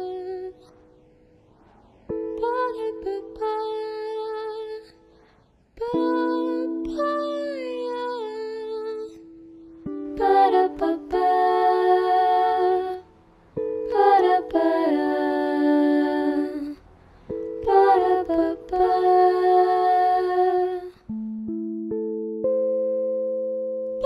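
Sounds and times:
wordless singing with sliding pitch: 0:00.0 - 0:21.2.

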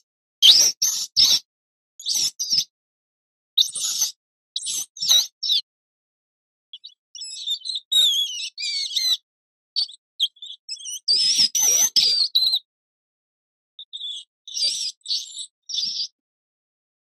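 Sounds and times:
small rodent squeaking: 0:00.4 - 0:02.7, 0:03.6 - 0:05.7, 0:06.8 - 0:09.2, 0:09.8 - 0:12.7, 0:13.8 - 0:16.2.

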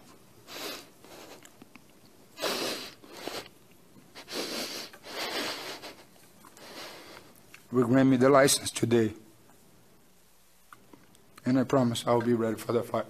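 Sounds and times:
man sniffling and shaky breaths: 0:00.4 - 0:07.5.

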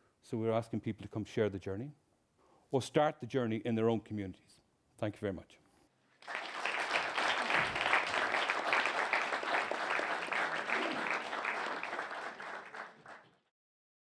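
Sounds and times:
audience applauding: 0:06.2 - 0:13.4.

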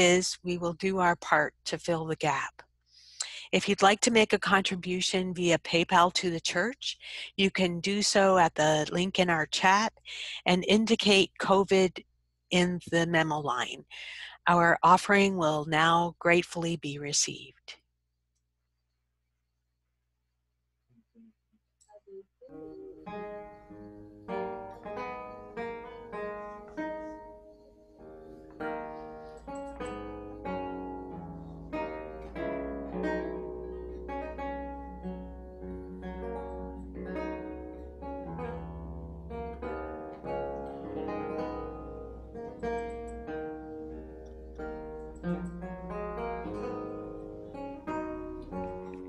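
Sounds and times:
plucked lute melody: 0:22.5 - 0:49.0.

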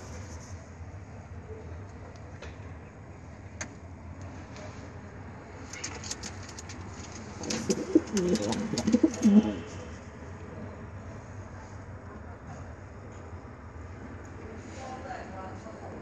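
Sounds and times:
sharp clicks and rustles: 0:05.6 - 0:09.3
pigeon cooing: 0:07.4 - 0:09.8.

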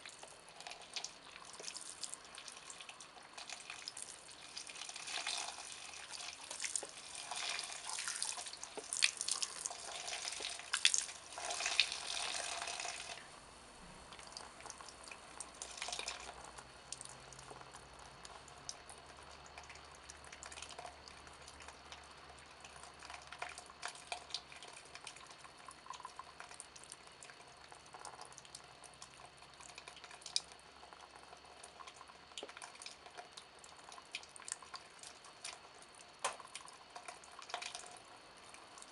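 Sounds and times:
wine dripping and splashing: 0:00.2 - 0:13.2.

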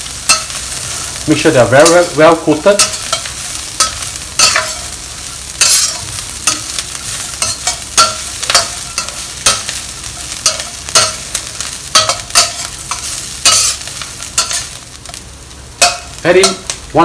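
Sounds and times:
chicken sizzling in hot oil: 0:00.0 - 0:17.0
metal spatula scraping wok: 0:01.8 - 0:15.2.

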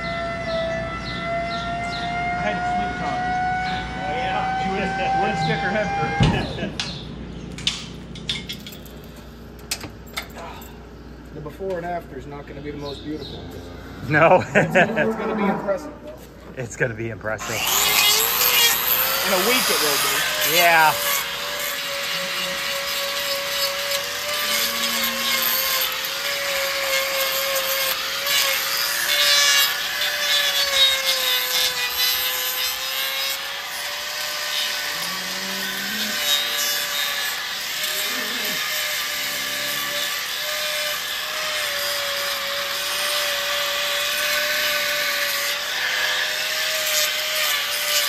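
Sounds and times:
angle grinder whine: 0:00.0 - 0:08.8, 0:17.4 - 0:48.0
disc rasping on hoof: 0:17.4 - 0:48.0.

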